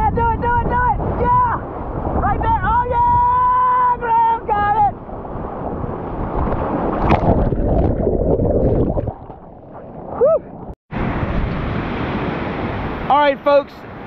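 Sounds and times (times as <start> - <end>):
wind on microphone: 0.0 - 13.1
water splash: 5.2 - 13.0.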